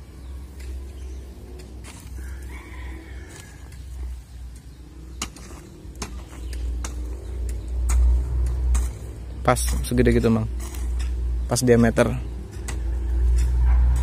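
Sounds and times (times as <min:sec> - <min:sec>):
steady low rumble: 0:00.0 - 0:14.0
hand hoe chopping soil: 0:00.5 - 0:02.4, 0:03.3 - 0:11.2.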